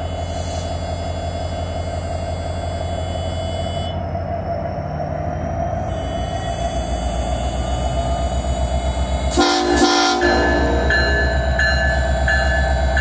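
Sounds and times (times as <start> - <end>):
diesel locomotive engine rumbling: 0.0 - 13.0
train horn blasts: 5.9 - 12.8
locomotive bell ringing: 6.1 - 13.0.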